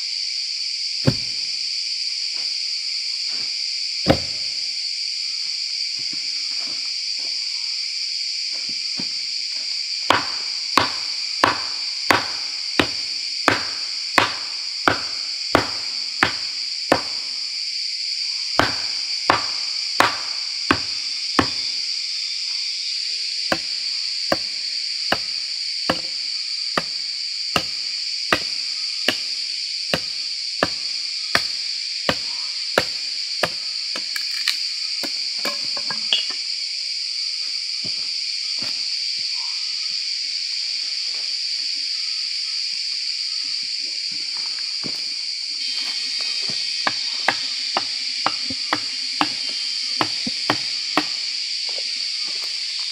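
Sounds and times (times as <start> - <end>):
insects droning: 0.0 - 52.9
tool striking wood: 1.0 - 1.4, 4.1 - 4.5, 10.1 - 17.2, 18.6 - 21.7, 23.5 - 23.7, 24.3 - 24.5, 25.1 - 26.2, 26.8 - 27.0, 27.6 - 29.3, 29.9 - 30.8, 31.4 - 36.4, 46.5 - 51.2.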